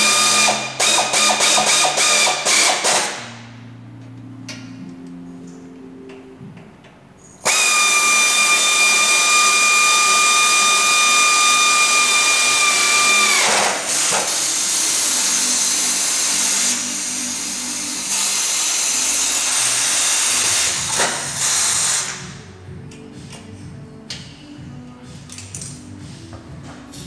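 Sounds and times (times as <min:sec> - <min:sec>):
power drill whining: 0:00.0 - 0:03.2, 0:07.4 - 0:22.1.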